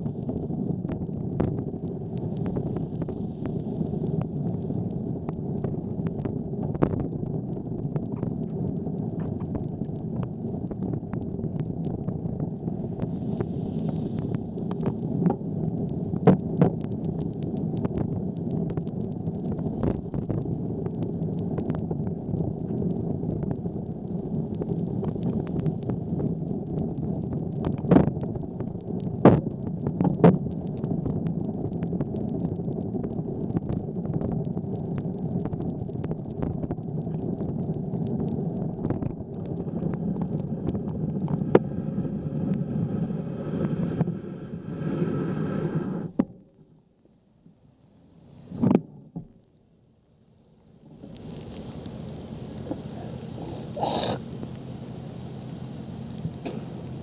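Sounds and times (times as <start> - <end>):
wind rush: 0.0 - 29.7
bicycle tyres on wet pavement: 0.0 - 44.3, 50.8 - 57.0.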